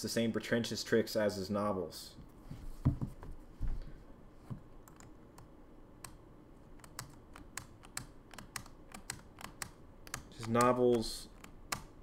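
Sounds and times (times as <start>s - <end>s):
computer keyboard key clicks: 6.8s - 11.9s.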